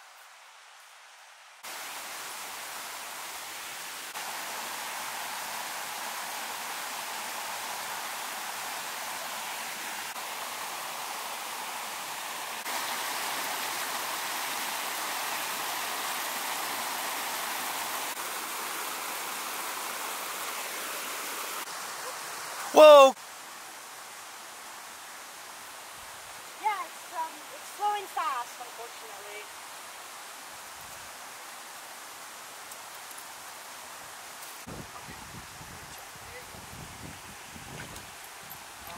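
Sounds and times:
river rushing over rocks: 1.6s - 23.2s.

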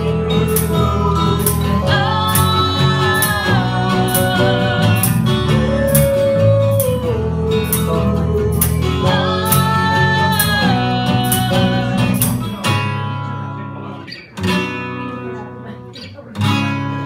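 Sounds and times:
woman singing: 0.0s - 12.5s
electric guitar: 0.0s - 17.0s
live band playing pop-rock: 0.0s - 17.0s
strummed acoustic guitar: 0.0s - 17.0s
percussion beat: 0.4s - 12.6s.

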